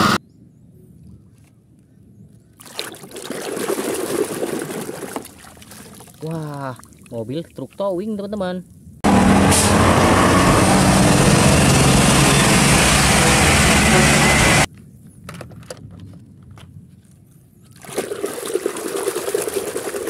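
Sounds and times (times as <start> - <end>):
truck engine and road noise: 0.0 - 0.2, 9.0 - 14.7
water sloshing in plastic basin: 2.6 - 7.7, 17.7 - 20.0.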